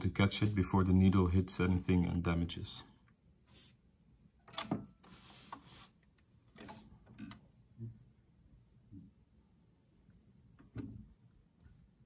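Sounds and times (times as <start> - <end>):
soft rustle: 5.0 - 6.1
faint mechanical clicks and knocks: 6.1 - 7.6, 10.1 - 11.9.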